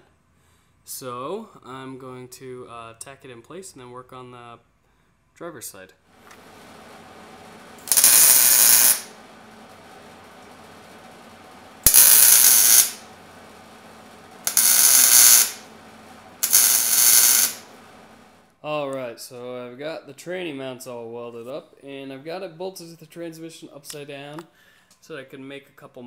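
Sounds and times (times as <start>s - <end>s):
low steady hum: 6.1s - 18.6s
wire-feed welder welding: 6.2s - 18.5s.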